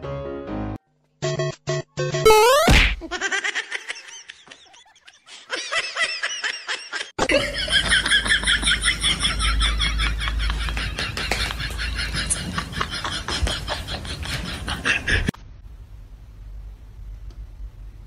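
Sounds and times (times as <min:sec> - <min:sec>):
people laughing: 0:03.1 - 0:15.3.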